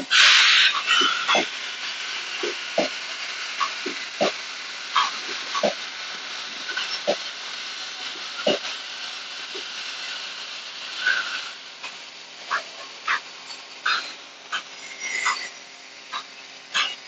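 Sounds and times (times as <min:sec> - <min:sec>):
air hissing: 0:00.0 - 0:17.0
welding electrode knock: 0:02.3 - 0:03.0, 0:03.6 - 0:07.4
short squeaky bursts: 0:13.1 - 0:16.2.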